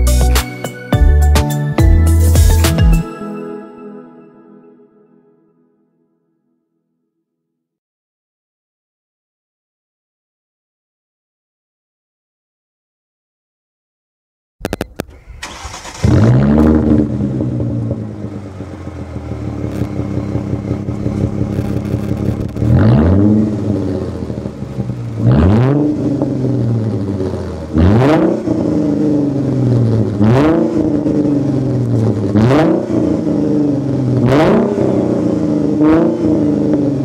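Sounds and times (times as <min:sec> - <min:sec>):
engine cranking: 0:14.6 - 0:17.3, 0:19.4 - 0:23.3
engine throttle blips: 0:14.6 - 0:37.0
loud engine idle: 0:17.4 - 0:22.6.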